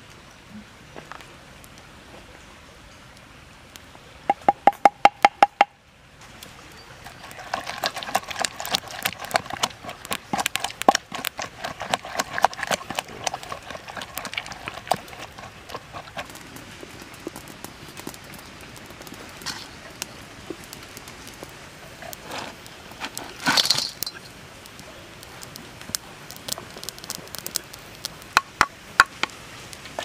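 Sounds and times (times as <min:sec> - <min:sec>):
wooden pestle knocking in mortar: 0:04.3 - 0:05.7
pestle mashing wet mixture: 0:07.0 - 0:18.3.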